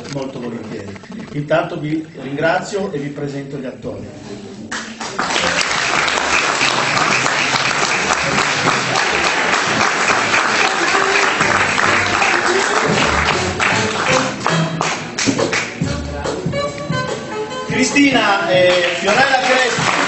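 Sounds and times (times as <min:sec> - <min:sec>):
audience applause: 0:04.7 - 0:15.7, 0:18.6 - 0:20.0
music: 0:05.2 - 0:20.0.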